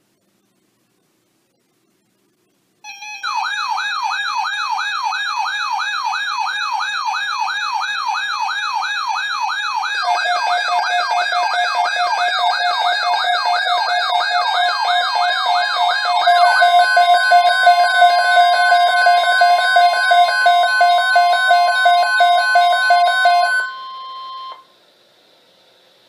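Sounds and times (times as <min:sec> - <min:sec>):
steady beeping tone: 0:02.8 - 0:24.6
warbling alarm siren: 0:02.9 - 0:24.6
higher beeping tone: 0:09.8 - 0:24.6.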